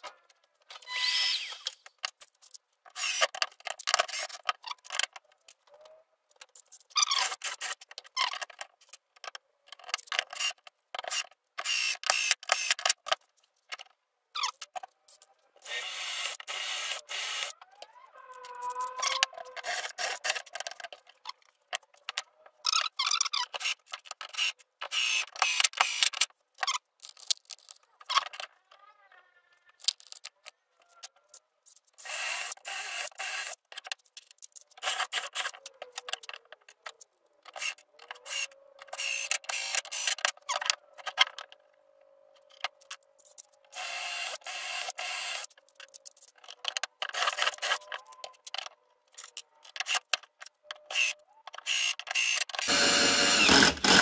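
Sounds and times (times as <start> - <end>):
scraping and rubbing: 17.5 - 24.2, 26.6 - 28.7.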